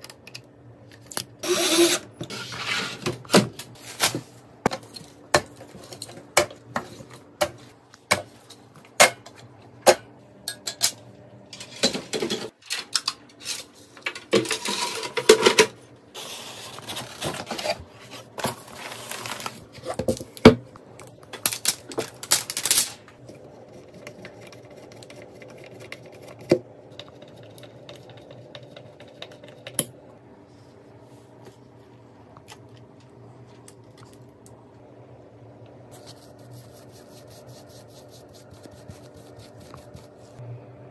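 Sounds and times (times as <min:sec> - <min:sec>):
steady low hum: 0:23.0 - 0:40.9.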